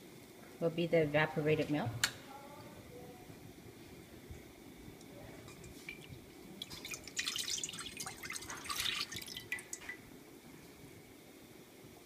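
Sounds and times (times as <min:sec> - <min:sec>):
liquid pouring into a pot: 0:05.4 - 0:10.2.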